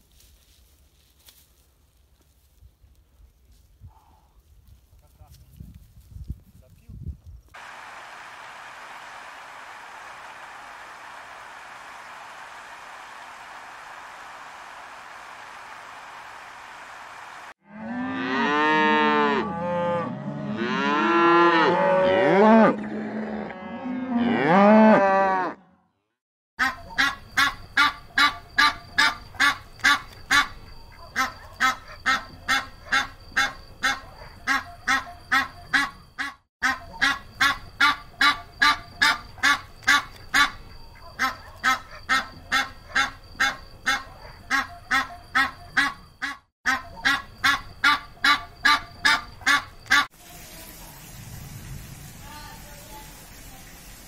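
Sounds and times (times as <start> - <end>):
cattle mooing: 17.6 - 25.6
geese honking: 26.6 - 50.1.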